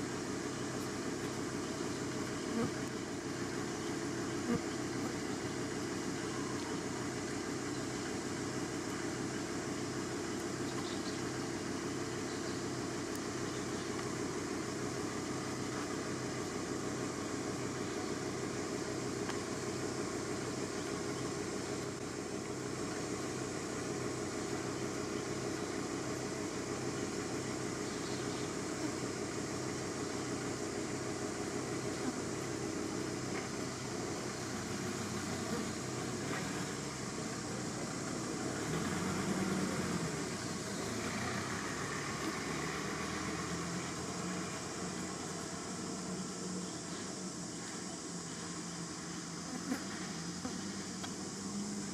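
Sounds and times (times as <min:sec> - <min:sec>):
mechanical drone with low hum: 0:00.0 - 0:41.0.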